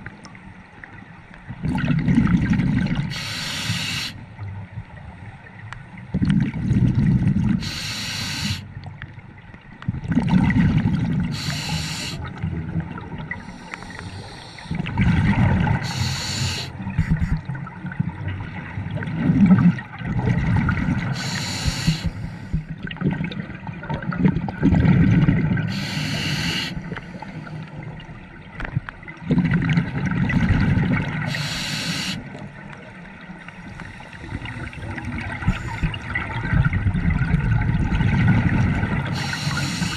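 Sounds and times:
exhaled bubbles underwater: 0.0 - 9.1, 9.7 - 39.9
regulator inhale hiss: 3.1 - 4.2, 7.6 - 8.8, 11.3 - 12.3, 13.3 - 15.0, 15.7 - 17.4, 21.1 - 22.7, 25.7 - 27.8, 31.2 - 32.4, 33.5 - 35.9, 39.0 - 39.9.

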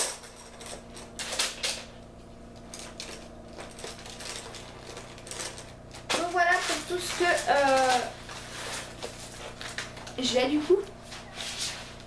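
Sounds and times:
plastic clattering and rustling: 2.6 - 10.5.

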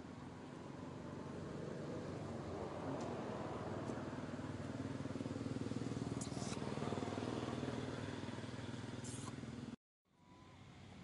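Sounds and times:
small engine idling: 4.1 - 11.0.

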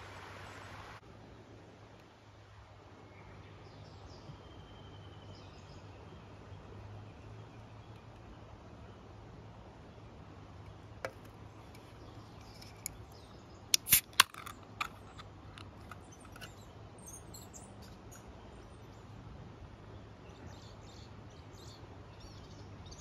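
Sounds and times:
faint bird chirps: 3.0 - 9.0, 16.0 - 19.1
sharp clicks and knocks: 13.8 - 16.6.

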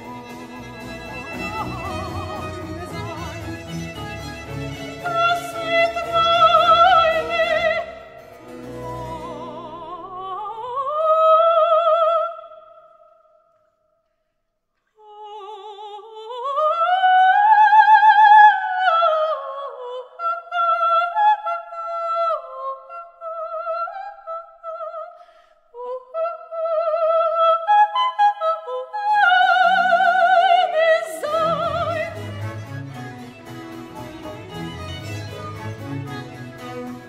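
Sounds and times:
double bass: 0.0 - 10.1, 31.3 - 37.0
violins: 0.0 - 10.8, 29.4 - 37.0
cello: 0.0 - 12.1, 29.2 - 37.0
soprano singing with vibrato: 0.0 - 13.2, 15.0 - 36.7.

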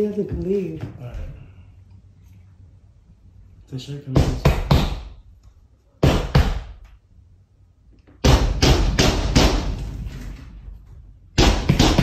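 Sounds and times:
loud banging: 8.2 - 12.0.

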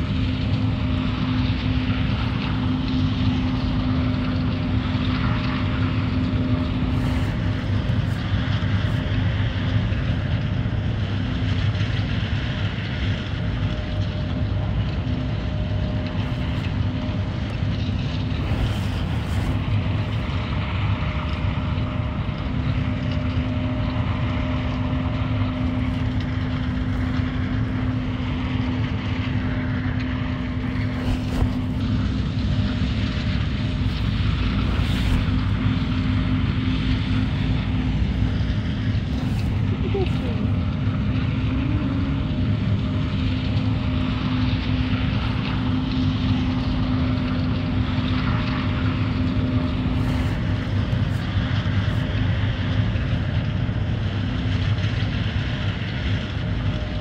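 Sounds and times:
vehicle engine rumble: 0.0 - 57.0.

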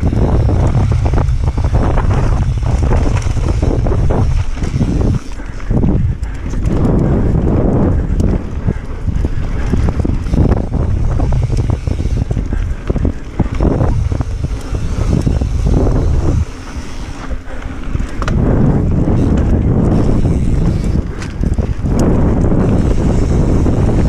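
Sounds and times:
bike clicks and rattles: 0.0 - 24.0
wind buffeting microphone: 0.0 - 24.0.

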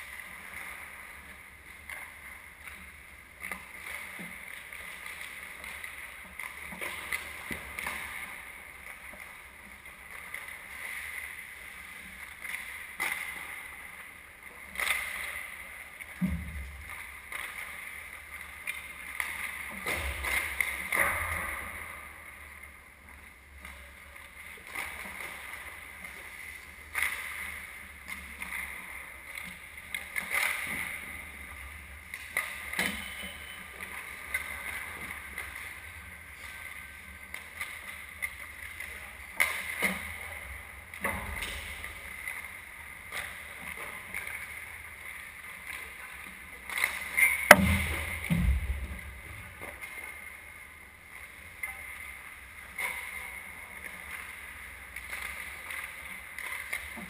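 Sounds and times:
hockey sticks and puck clacking: 46.7 - 48.6.

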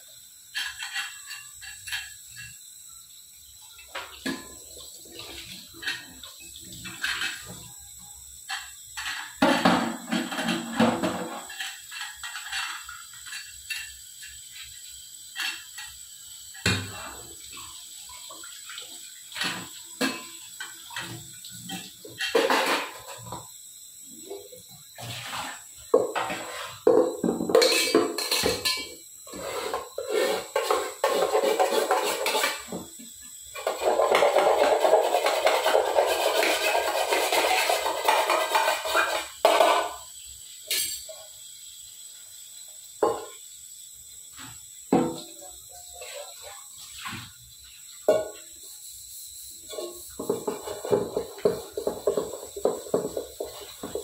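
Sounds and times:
tap water running: 0.0 - 54.0
water rushing over a pot: 0.0 - 54.0
utensils clanking and scraping: 0.5 - 2.6, 5.2 - 7.7, 8.5 - 14.4, 25.0 - 32.9.

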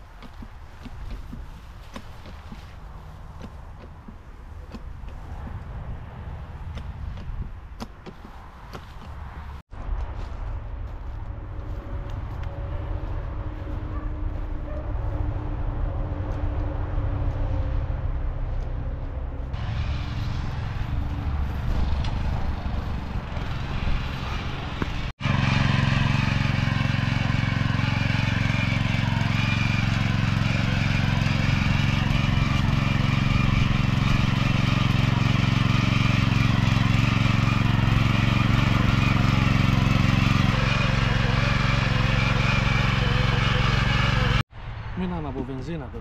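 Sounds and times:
tines churning soil: 0.0 - 5.8, 19.5 - 44.4
rotary tiller engine running: 19.6 - 44.4.

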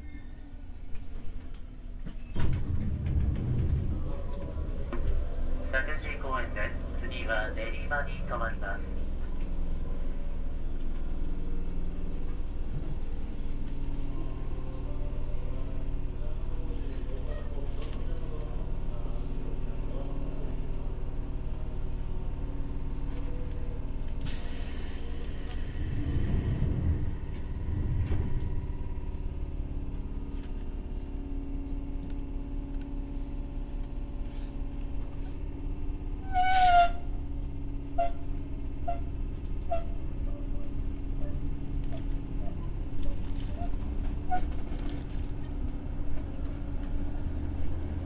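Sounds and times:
electric train hum: 0.0 - 48.0
heavy low thumps: 2.4 - 5.7, 25.8 - 29.9.

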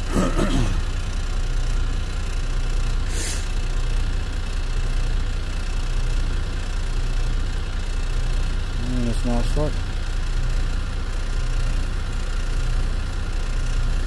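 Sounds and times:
diesel engine idling: 0.0 - 14.0
short hiss: 3.0 - 3.6.

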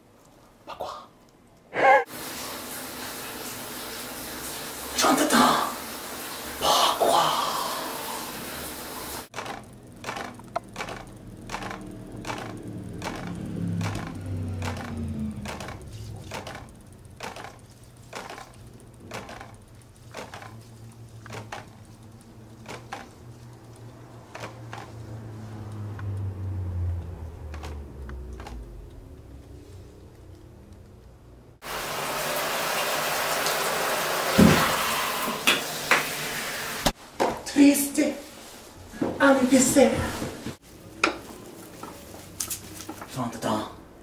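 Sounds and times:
bicycle wheel ticking clicks: 9.3 - 31.2
low hum: 9.4 - 31.6.

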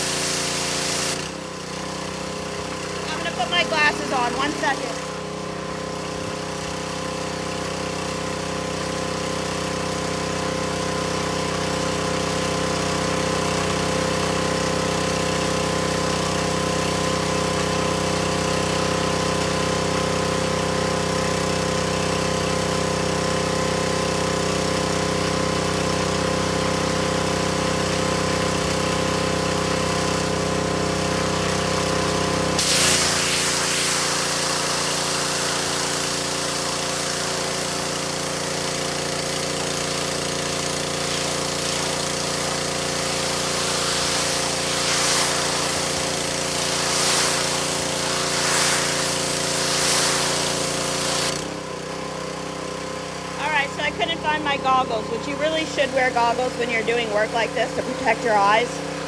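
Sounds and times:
water spray hissing: 0.0 - 1.2, 32.6 - 51.5
pressure washer motor running: 0.0 - 59.0.

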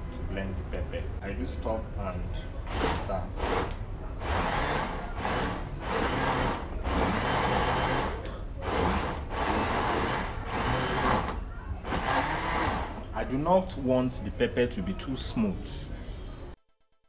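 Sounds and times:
blender motor chopping: 2.7 - 13.0.

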